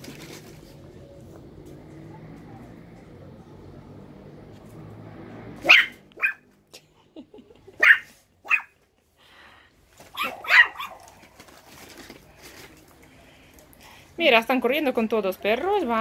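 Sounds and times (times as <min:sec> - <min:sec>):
small dog barking sharply: 0:05.6 - 0:06.5, 0:07.8 - 0:08.8, 0:10.1 - 0:11.1.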